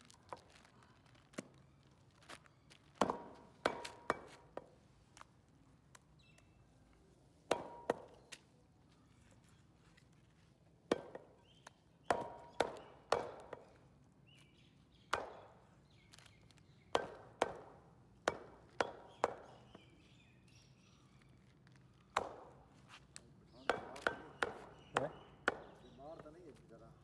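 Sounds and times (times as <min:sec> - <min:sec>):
cleaver chopping meat on wood: 0:03.0 - 0:04.7, 0:07.5 - 0:08.4, 0:10.9 - 0:13.8, 0:15.1 - 0:15.6, 0:16.9 - 0:19.8, 0:22.1 - 0:22.6, 0:23.6 - 0:25.9.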